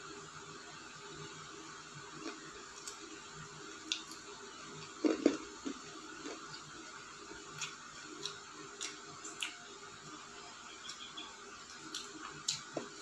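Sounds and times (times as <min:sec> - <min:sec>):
crunchy chewing: 0:03.8 - 0:06.8, 0:07.5 - 0:09.7, 0:10.7 - 0:13.0.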